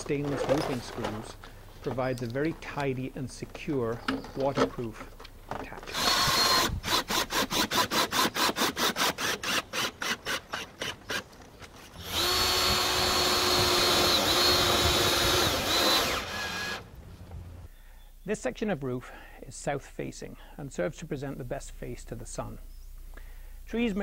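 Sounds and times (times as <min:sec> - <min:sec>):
cordless drill motor whine: 0:05.9 - 0:07.3, 0:11.9 - 0:16.9.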